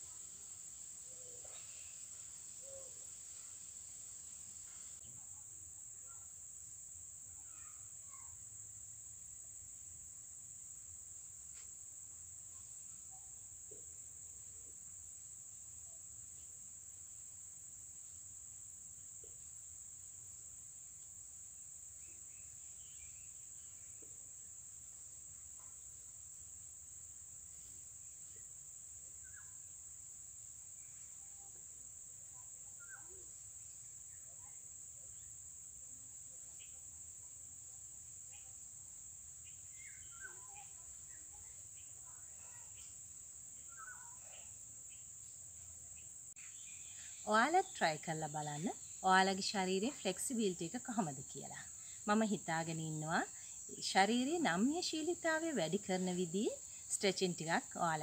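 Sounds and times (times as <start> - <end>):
faint insect chirps: 0.0 - 58.0
high-pitched insect chorus: 0.0 - 58.0.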